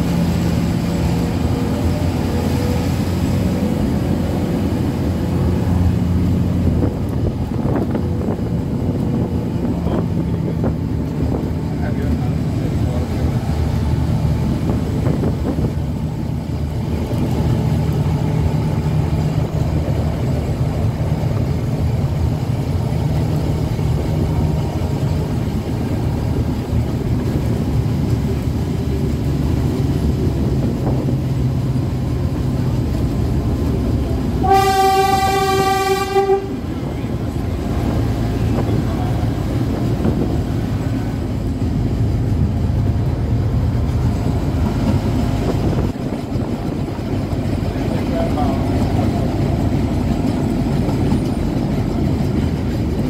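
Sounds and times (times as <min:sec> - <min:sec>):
train running low drone: 0:00.0 - 0:53.0
train horn blast: 0:34.4 - 0:36.7.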